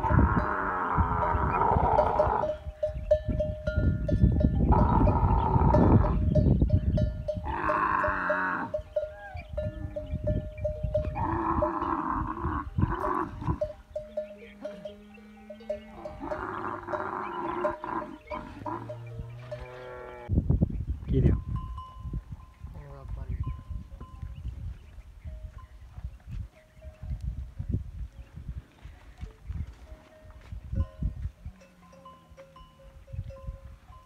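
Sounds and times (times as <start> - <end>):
camel calling: 0.0 - 2.8, 4.5 - 6.4, 7.2 - 20.3.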